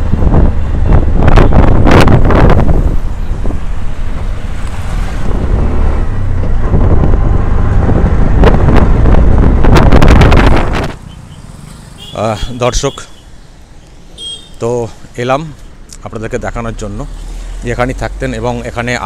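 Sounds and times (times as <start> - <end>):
wind buffeting microphone: 0.0 - 11.6
engine and road rumble: 0.0 - 19.0.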